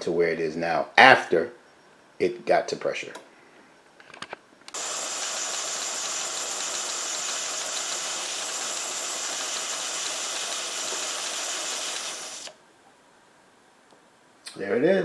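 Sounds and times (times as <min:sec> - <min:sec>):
steam hissing through valve: 0:04.8 - 0:12.6.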